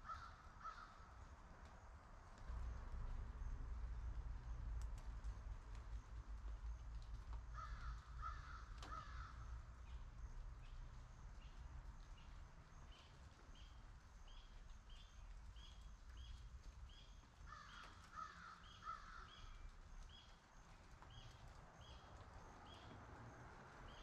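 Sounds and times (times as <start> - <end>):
crow cawing: 0.0 - 1.0, 7.5 - 9.5, 17.5 - 19.5
faint low rumble: 1.0 - 18.1.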